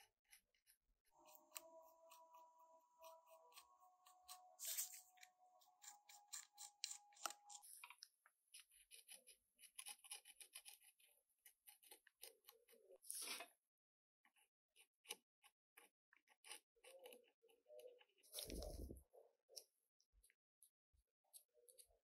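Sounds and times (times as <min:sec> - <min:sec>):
scrape: 0:03.0 - 0:07.9, 0:13.0 - 0:13.6, 0:18.3 - 0:19.0.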